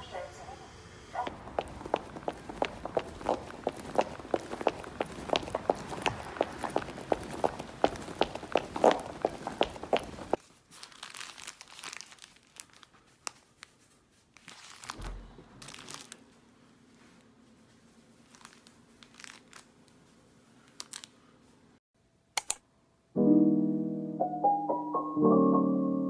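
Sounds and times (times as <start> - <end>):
paper and plastic bag crinkling: 10.4 - 15.0, 15.6 - 16.3, 18.1 - 21.1.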